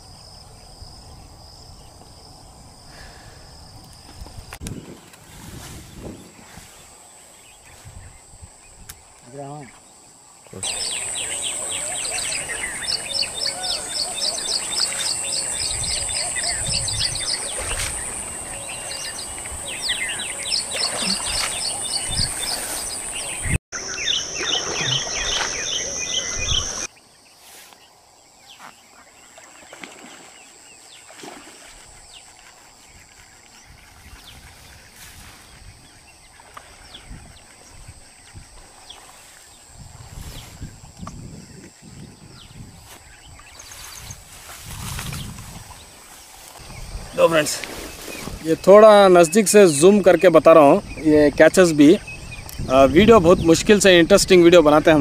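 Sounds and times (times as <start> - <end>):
birds chirping: 5.8 - 55.0
high-pitched insect drone: 5.9 - 27.0.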